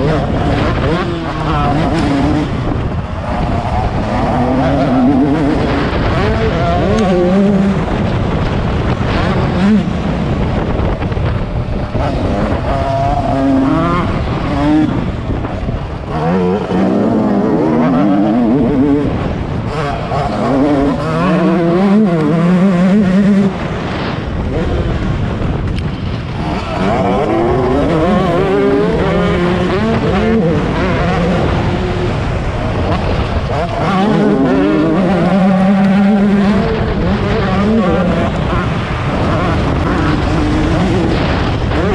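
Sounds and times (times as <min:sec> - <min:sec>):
motocross engine revving: 0:00.0 - 0:41.9.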